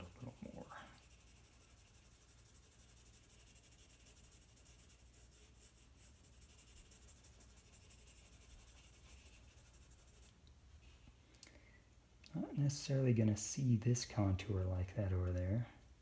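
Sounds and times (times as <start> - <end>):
blending stump rubbing on paper: 0.0 - 10.4.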